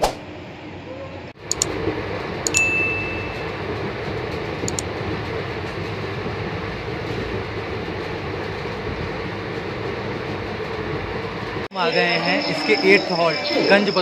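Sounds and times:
train coach rumbling on track: 0.4 - 14.0
sharp click with ringing tone: 2.5 - 2.9.

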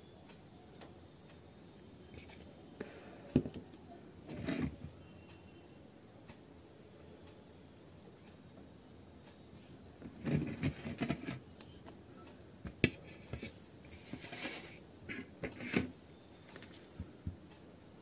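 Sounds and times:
crackling and light taps: 10.0 - 17.6.

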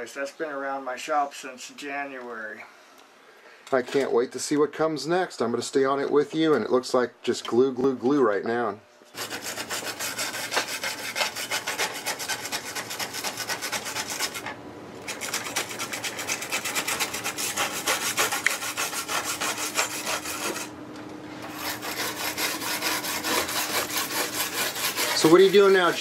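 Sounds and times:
wire brush scrubbing plastic: 9.2 - 20.7, 21.4 - 26.0.

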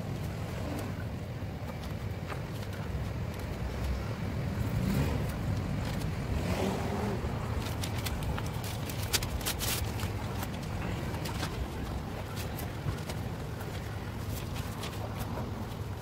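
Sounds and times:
outdoor background hum: 0.0 - 16.0
newspaper crackling: 7.4 - 16.0.

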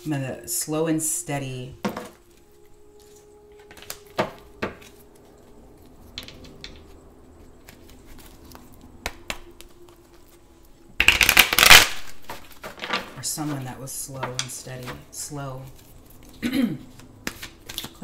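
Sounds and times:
cards shuffling: 2.0 - 18.0
cards tapping and clicking: 3.5 - 5.0, 7.6 - 10.1, 16.9 - 18.0.

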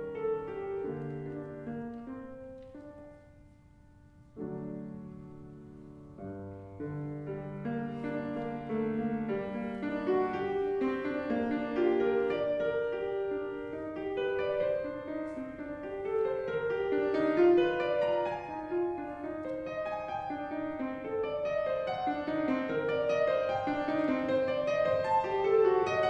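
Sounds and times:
fast grand piano playing: 0.0 - 26.0.

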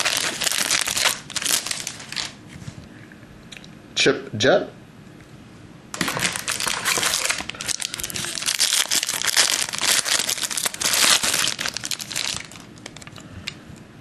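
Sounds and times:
wrapper crinkling and tearing: 0.0 - 2.4, 6.0 - 13.2.

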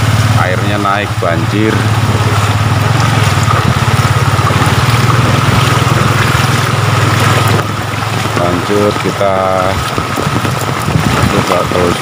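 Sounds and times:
motorcycle engine running: 0.0 - 12.0
water rushing and splashing: 0.0 - 12.0.

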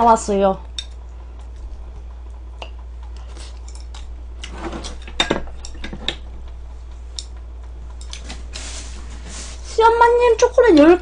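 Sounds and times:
chopsticks clicking on a bowl: 0.7 - 1.6, 6.9 - 8.4.

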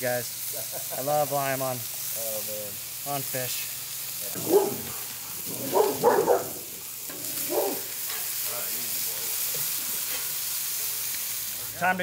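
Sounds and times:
fish sizzling on a griddle: 0.0 - 12.0
dog barking: 4.4 - 7.9
metal spatula on griddle: 6.8 - 11.8.

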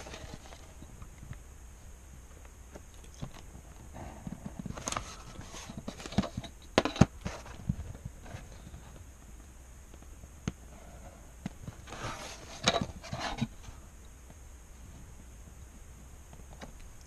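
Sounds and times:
paper rustling: 0.0 - 0.8, 4.6 - 9.0, 11.7 - 13.7.

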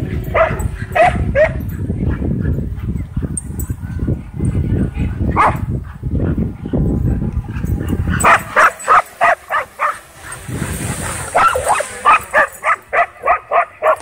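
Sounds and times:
dog barking: 0.3 - 1.6, 5.4 - 5.7, 8.2 - 10.4, 11.3 - 14.0.

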